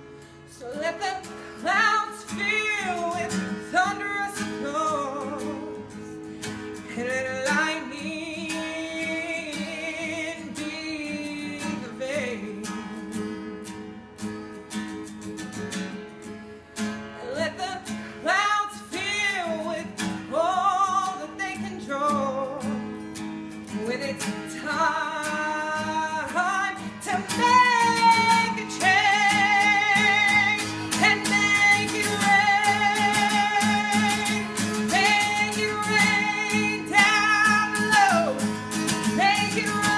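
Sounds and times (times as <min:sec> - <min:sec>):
strummed acoustic guitar: 0:00.0 - 0:39.9
person singing: 0:00.5 - 0:06.2, 0:06.9 - 0:13.2, 0:17.2 - 0:22.8, 0:23.7 - 0:39.9.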